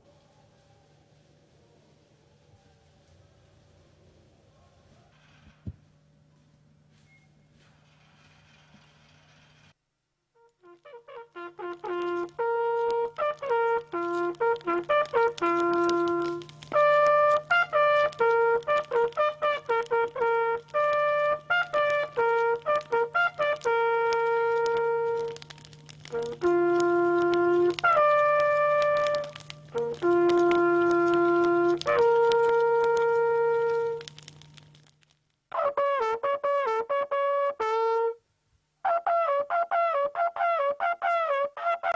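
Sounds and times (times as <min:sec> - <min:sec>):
faint low hum: 0:00.0 - 0:38.9
hunting horn call: 0:10.4 - 0:34.9, 0:35.5 - 0:38.2, 0:38.8 - 0:41.9.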